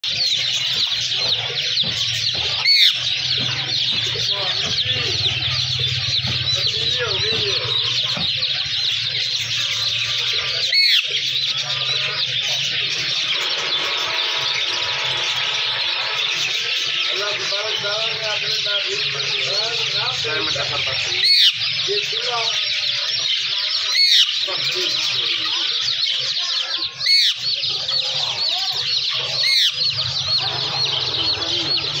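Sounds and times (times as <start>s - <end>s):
small birds chirping: 0.0s - 32.0s
parrot squawk: 0.1s - 18.2s, 21.2s - 21.8s, 22.5s - 32.0s
parakeet harsh screeches: 2.5s - 3.9s, 9.2s - 18.2s, 21.2s - 21.8s, 22.5s - 24.5s, 25.6s - 32.0s.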